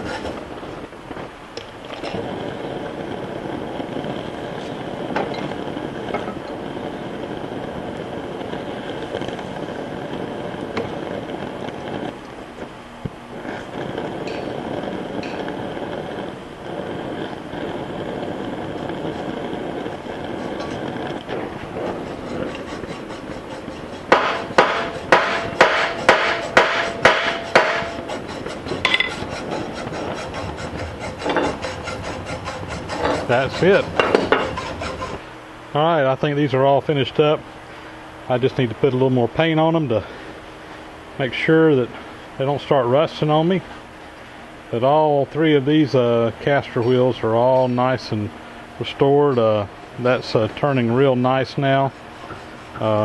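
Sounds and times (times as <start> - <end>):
torch flame hissing: 0.0 - 53.0
hammer striking hot metal: 5.1 - 6.6, 14.1 - 15.6, 18.1 - 35.2.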